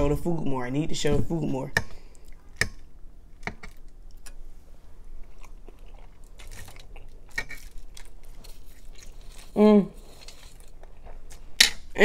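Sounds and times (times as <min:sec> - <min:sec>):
chewing: 0:05.1 - 0:11.8.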